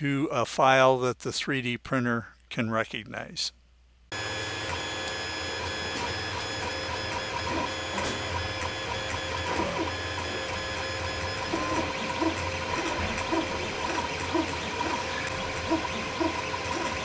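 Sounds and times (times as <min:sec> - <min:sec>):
stepper motors whining: 0:04.1 - 0:17.0
cooling fans hissing: 0:04.2 - 0:17.0.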